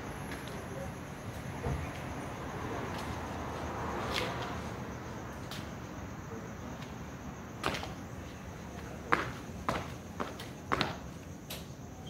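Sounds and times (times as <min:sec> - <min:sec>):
steady background noise: 0:00.0 - 0:12.0
sneaker sliding on concrete: 0:02.8 - 0:04.8, 0:07.6 - 0:11.1.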